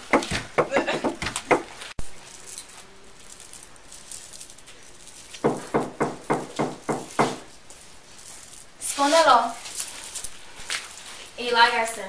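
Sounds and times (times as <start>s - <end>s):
fist knocking on door: 0.0s - 1.7s, 5.4s - 7.4s.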